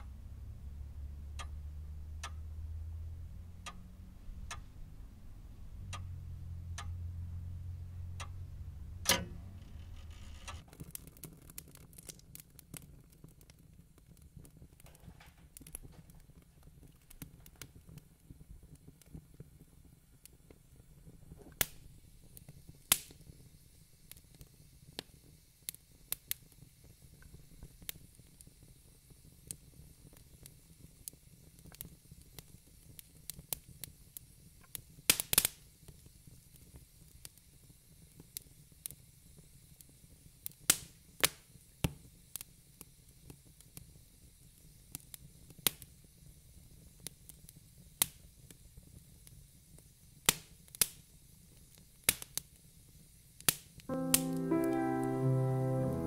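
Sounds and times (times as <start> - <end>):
low steady hum: 0.0 - 10.6
sharp clicks and pops: 9.0 - 15.9.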